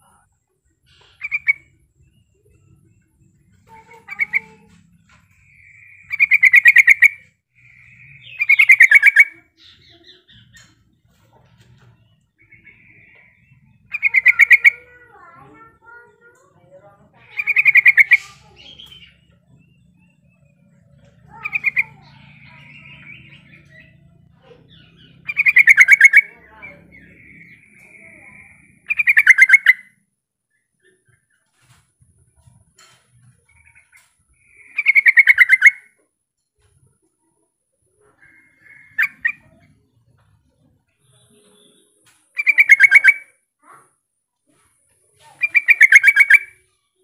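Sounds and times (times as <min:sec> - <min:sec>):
bird churr: 0:00.0 - 0:30.0, 0:32.4 - 0:36.0, 0:37.9 - 0:43.9, 0:45.2 - 0:47.0
bird bubbling chatter: 0:00.9 - 0:01.8, 0:05.3 - 0:10.8, 0:12.4 - 0:15.1, 0:17.3 - 0:19.4, 0:20.8 - 0:24.0, 0:24.7 - 0:29.9, 0:33.6 - 0:35.9, 0:38.1 - 0:39.7, 0:41.6 - 0:43.3, 0:45.4 - 0:46.7.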